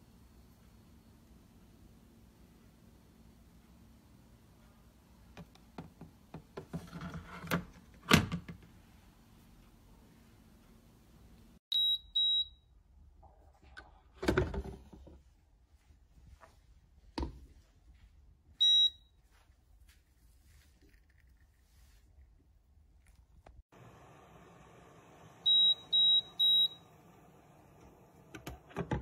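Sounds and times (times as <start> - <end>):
coffee maker beeping: 23.8 - 29.0.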